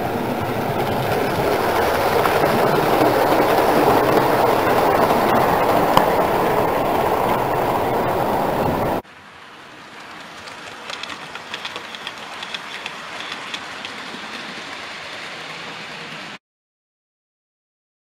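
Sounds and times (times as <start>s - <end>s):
model train rolling rumble: 0.0s - 9.0s, 10.0s - 16.4s
model train wheels clicking: 10.0s - 16.4s.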